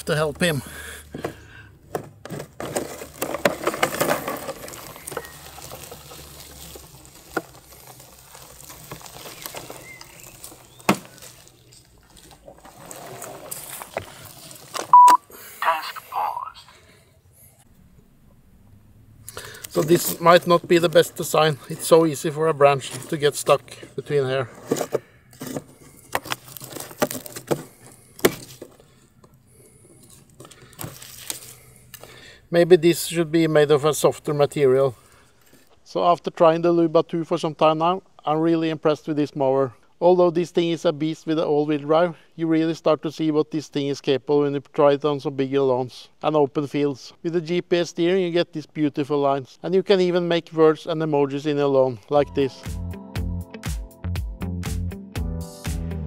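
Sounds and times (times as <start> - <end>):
twigs and grass crackling: 2.3 - 15.0, 19.3 - 32.2.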